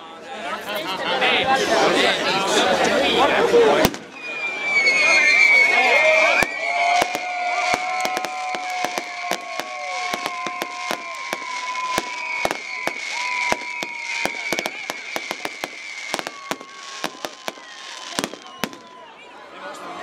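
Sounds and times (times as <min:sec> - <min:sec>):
firework whistles: 0:03.7 - 0:19.0
fireworks bangs and pops: 0:03.8 - 0:04.3, 0:06.4 - 0:19.0.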